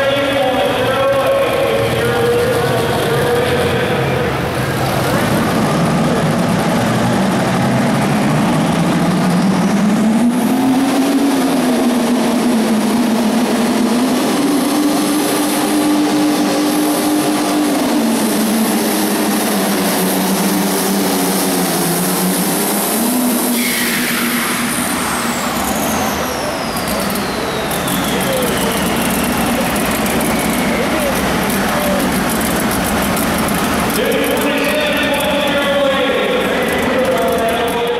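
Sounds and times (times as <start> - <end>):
diesel tractor engine under load: 0.0 - 37.9
turbocharger whistle: 22.9 - 32.1.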